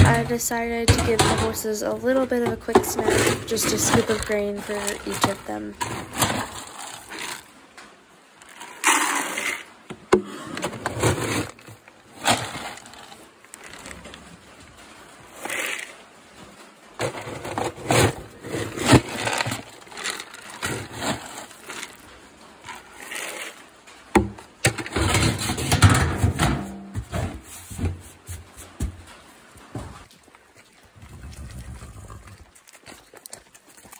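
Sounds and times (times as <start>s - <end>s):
plastic scoop scraping feed pellets: 2.6s - 7.6s, 8.4s - 14.3s, 15.2s - 16.1s, 17.0s - 23.7s
pellets pouring into plastic bucket: 3.0s - 7.5s, 8.4s - 9.7s, 10.8s - 14.2s, 15.3s - 16.0s, 17.0s - 23.6s.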